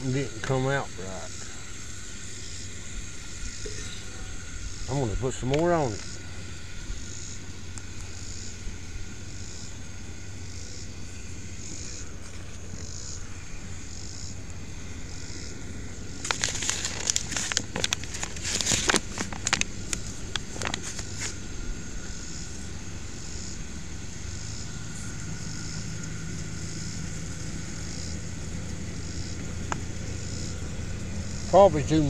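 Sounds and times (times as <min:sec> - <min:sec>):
paper bag crinkling: 0:16.2 - 0:21.4.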